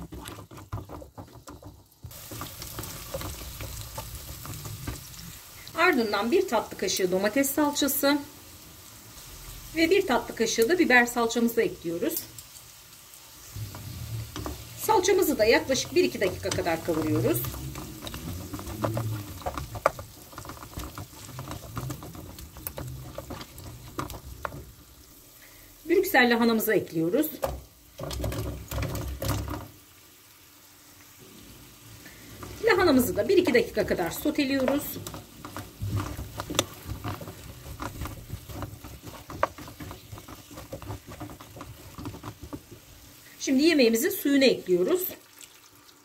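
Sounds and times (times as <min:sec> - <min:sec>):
wooden spoon scraping pan: 0:00.0 - 0:06.6, 0:13.4 - 0:25.2, 0:25.9 - 0:29.7, 0:32.1 - 0:44.1
frying crackles: 0:00.0 - 0:46.0.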